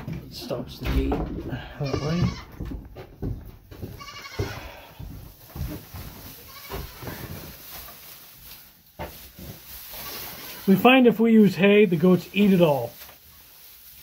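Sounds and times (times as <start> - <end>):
goat bleating: 1.6 - 2.6, 3.9 - 4.9, 6.4 - 7.0
straw rustling: 4.0 - 14.0.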